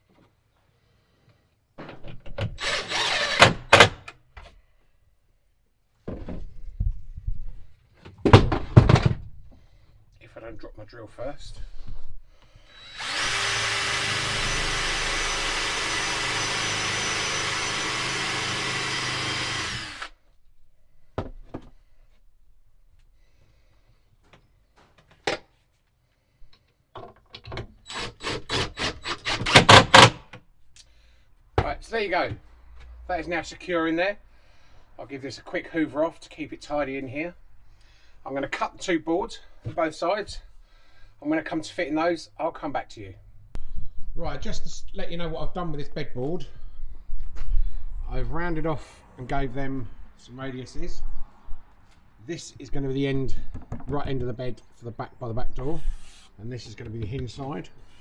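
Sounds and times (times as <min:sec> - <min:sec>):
cordless drill driving a screw: 0:02.6 - 0:04.0, 0:12.7 - 0:20.2, 0:27.9 - 0:30.2, 0:55.8 - 0:56.4.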